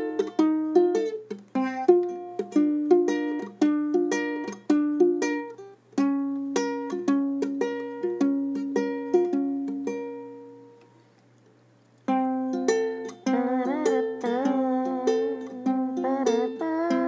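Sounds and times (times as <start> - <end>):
plucked string melody: 0.0 - 11.0, 12.1 - 17.0.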